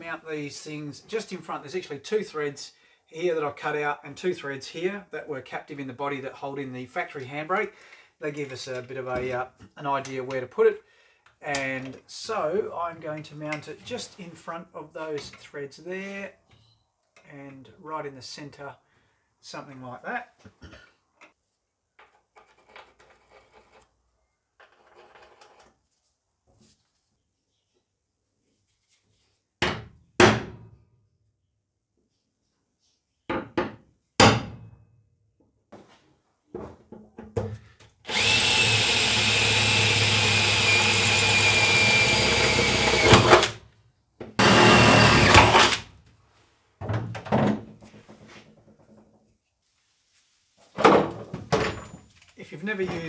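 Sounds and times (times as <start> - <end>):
drill whining through sheet metal: 38.1 - 43.6, 44.4 - 45.9.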